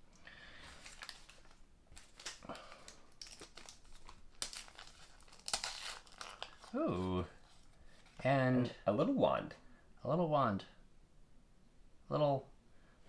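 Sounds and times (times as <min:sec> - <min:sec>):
wrapper crinkling and tearing: 0:00.6 - 0:08.1.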